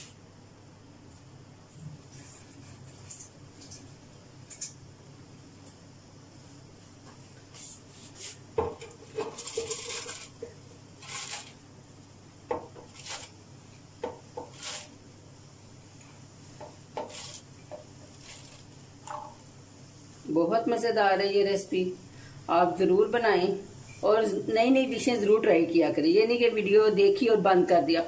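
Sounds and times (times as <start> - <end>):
rice scraping and clinking: 9.0 - 10.4, 11.0 - 11.6, 12.8 - 13.4, 14.4 - 15.0, 17.0 - 19.2.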